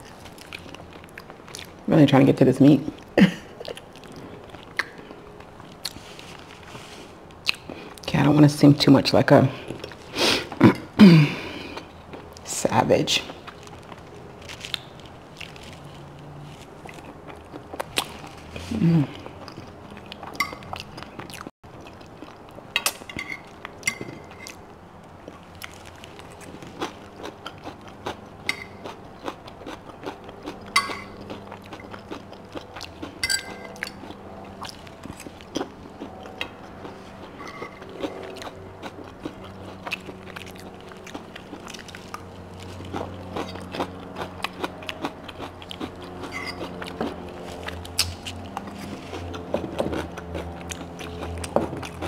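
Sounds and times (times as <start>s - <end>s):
person chewing food: 0.0s - 1.9s, 2.9s - 8.1s, 9.6s - 12.4s, 13.3s - 52.0s
fork scraping a plate: 23.1s - 24.6s, 36.4s - 38.3s, 46.2s - 47.7s.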